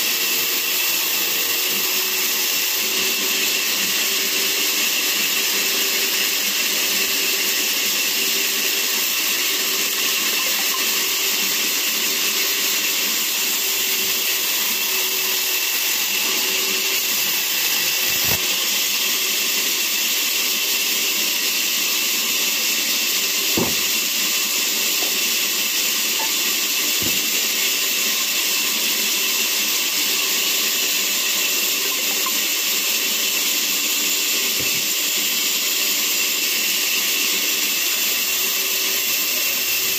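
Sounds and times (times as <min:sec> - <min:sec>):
band saw cutting log: 0:00.0 - 0:39.9
dull knocks: 0:23.5 - 0:24.0.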